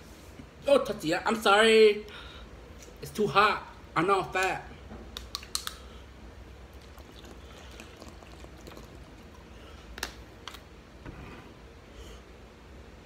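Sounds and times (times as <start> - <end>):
low room hum: 0.0 - 13.0
eating and handling noises: 5.1 - 10.7.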